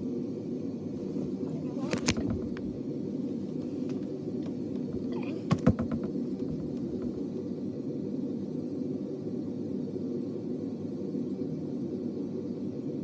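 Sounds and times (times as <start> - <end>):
steady low hum: 0.0 - 13.0
clicks and knocks: 4.4 - 7.2.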